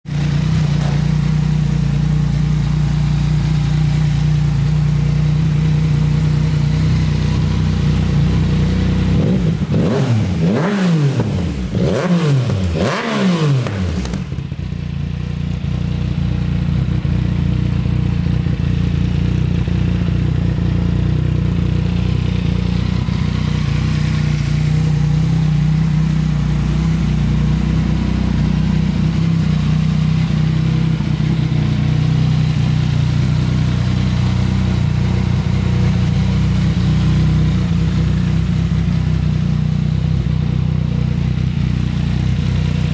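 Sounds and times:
motorcycle engine idling: 0:00.1 - 0:42.9
engine revving: 0:05.4 - 0:14.6.

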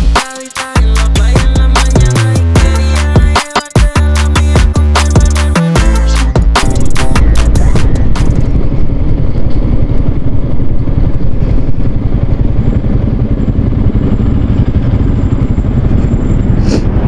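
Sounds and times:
motorcycle engine slowing down: 0:04.4 - 0:17.0
road noise: 0:07.0 - 0:17.0.

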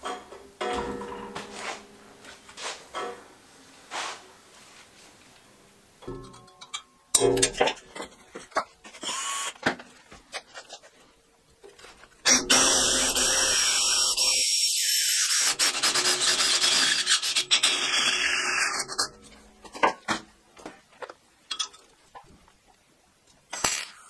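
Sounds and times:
drill motor whine: 0:12.3 - 0:14.5
drill bit grinding steel: 0:12.3 - 0:19.0.

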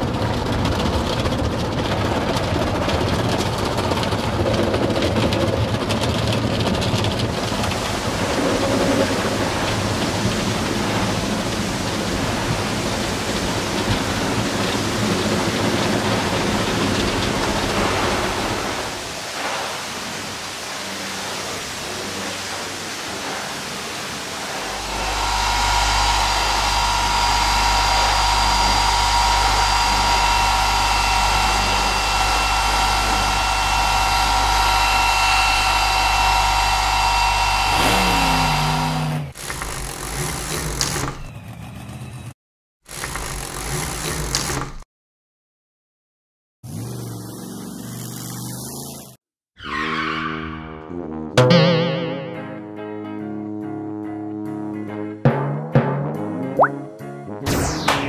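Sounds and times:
machine hum with water spraying: 0:00.0 - 0:41.1
scrubbing brushes and water hiss: 0:07.4 - 0:39.1
short falling tone: 0:49.8 - 0:52.8.

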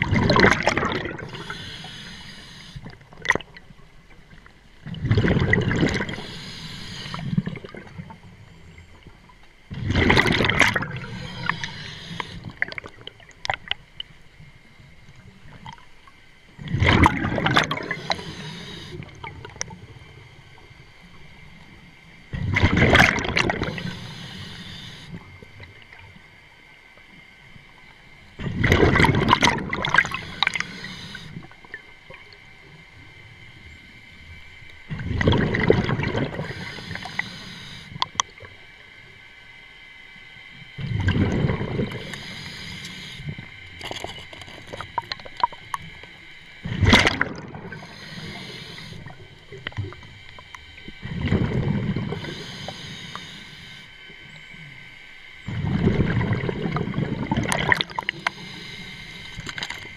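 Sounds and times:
diver exhaling bubbles gurgling: 0:00.0 - 0:02.4, 0:04.8 - 0:08.1, 0:09.7 - 0:13.2, 0:16.6 - 0:19.7, 0:22.3 - 0:24.5, 0:28.4 - 0:31.0, 0:34.9 - 0:37.2, 0:40.8 - 0:46.0, 0:46.6 - 0:50.0, 0:51.0 - 0:52.8, 0:55.5 - 0:59.9
regulator hiss: 0:01.2 - 0:02.9, 0:06.0 - 0:07.4, 0:11.0 - 0:12.6, 0:17.8 - 0:22.2, 0:23.6 - 0:25.7, 0:29.9 - 0:31.7, 0:36.3 - 0:40.8, 0:41.9 - 0:43.8, 0:47.6 - 0:51.1, 0:51.9 - 0:55.0, 0:57.9 - 0:59.9.

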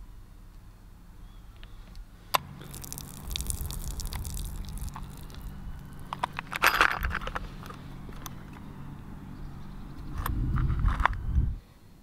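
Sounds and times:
liquid splattering onto grass: 0:02.6 - 0:05.9
metal parts rattling in tray: 0:06.5 - 0:07.4.

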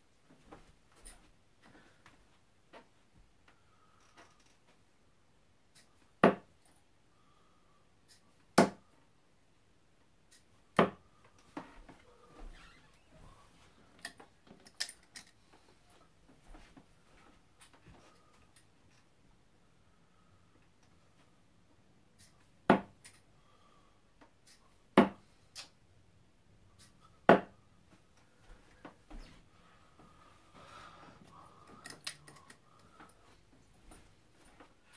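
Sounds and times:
darts thudding into dartboard: 0:06.2 - 0:06.5, 0:08.6 - 0:08.8, 0:10.8 - 0:11.0, 0:22.7 - 0:23.0, 0:25.0 - 0:25.2, 0:27.3 - 0:27.6.

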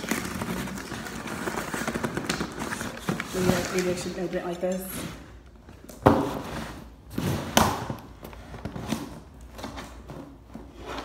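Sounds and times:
cardboard scraping and rustling: 0:00.0 - 0:04.3.

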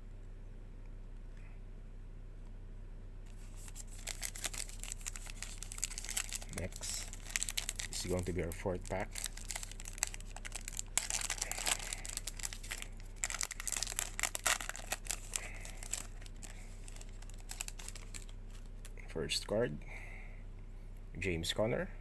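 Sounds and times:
foil wrapper crackling: 0:03.3 - 0:19.0.

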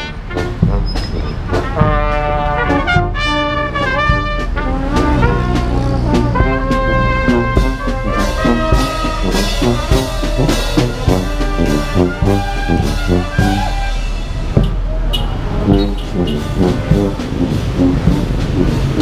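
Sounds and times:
bass drum and cymbals: 0:00.0 - 0:19.0
saxophones and brass horns: 0:00.0 - 0:19.0
sousaphone bass line: 0:14.5 - 0:19.0.

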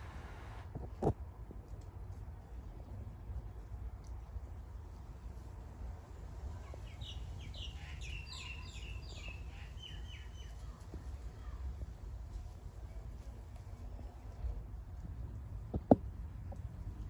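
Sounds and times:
steady low rumble: 0:00.0 - 0:06.9
songbird chirping: 0:06.5 - 0:11.8.

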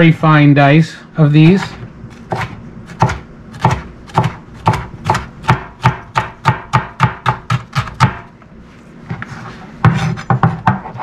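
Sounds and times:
knife chopping on plastic board: 0:02.2 - 0:08.3, 0:09.8 - 0:11.0.

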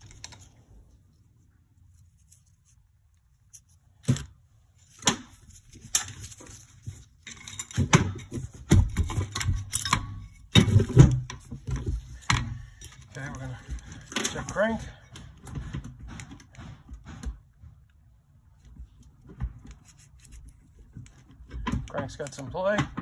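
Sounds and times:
metal knocks and clattering: 0:05.1 - 0:17.6.

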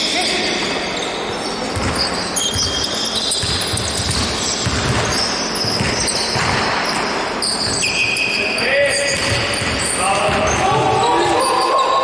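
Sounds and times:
shoes squeaking on floor: 0:00.0 - 0:11.9
basketball bouncing on court: 0:01.7 - 0:08.0, 0:09.0 - 0:11.5.

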